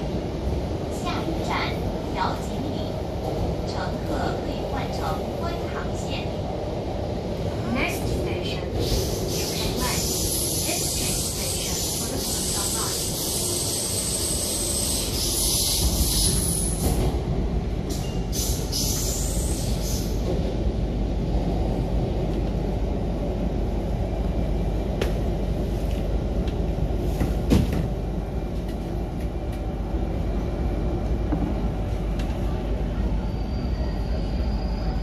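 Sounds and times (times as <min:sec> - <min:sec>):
train running rumble: 0:00.0 - 0:35.0
hiss: 0:08.8 - 0:16.9, 0:18.3 - 0:20.2.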